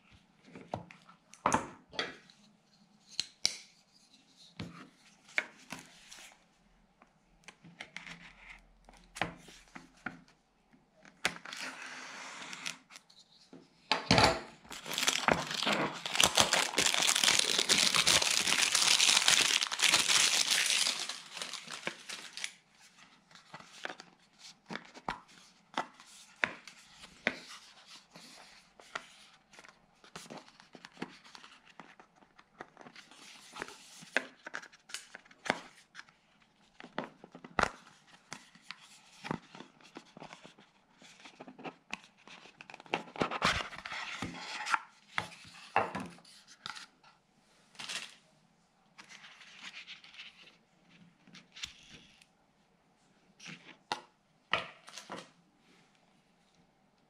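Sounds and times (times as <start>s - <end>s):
cardboard tearing and crinkling: 14.7s - 22.6s.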